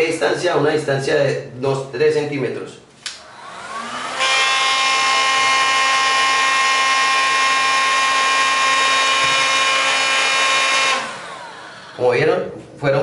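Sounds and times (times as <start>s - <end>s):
heat gun blowing and whining: 3.1s - 12.1s.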